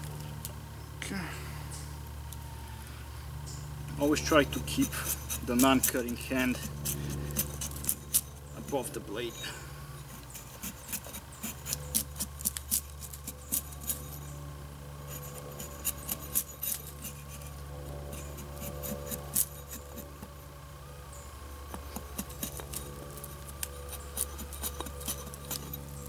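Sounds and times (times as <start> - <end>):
axe head scraping wood: 4.1 - 14.4, 15.0 - 20.4, 21.6 - 26.0.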